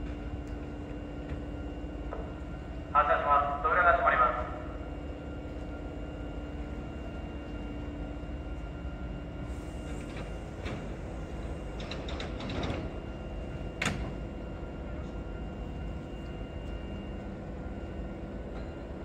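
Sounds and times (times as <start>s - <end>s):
train equipment hum: 0.0s - 19.0s
train doors sliding shut: 9.4s - 14.4s.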